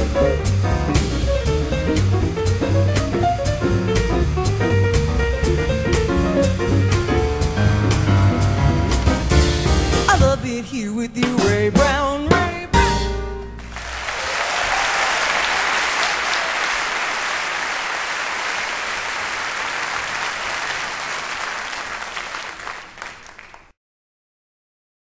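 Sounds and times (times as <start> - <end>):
audience applauding: 13.6 - 23.7.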